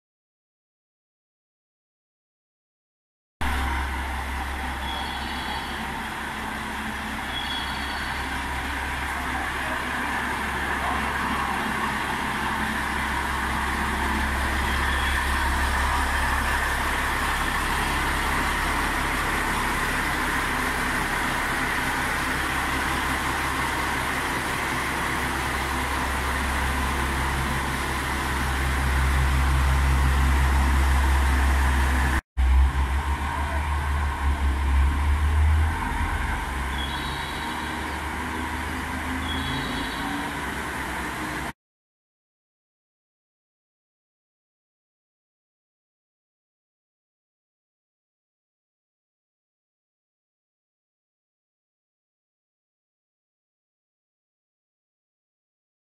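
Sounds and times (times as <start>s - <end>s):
diesel train engines droning: 3.4s - 41.6s.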